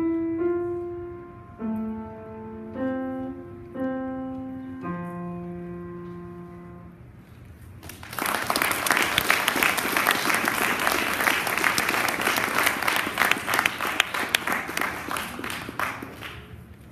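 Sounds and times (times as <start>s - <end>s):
audience applauding: 7.8s - 16.7s.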